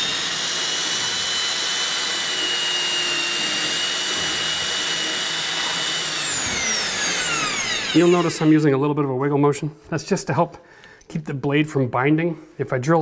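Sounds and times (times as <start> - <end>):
drill motor whine: 0.0 - 8.6.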